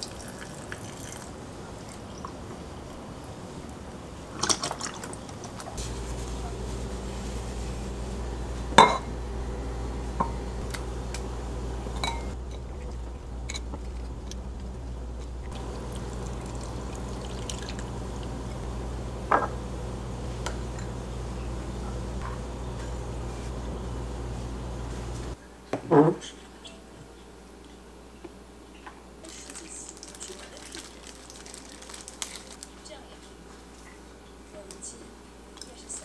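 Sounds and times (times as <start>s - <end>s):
milk pouring into a pitcher: 0.0s - 1.3s, 15.6s - 18.6s
steady low hum: 0.0s - 25.6s
dishes and utensils clinking: 8.8s - 9.2s, 11.9s - 13.9s.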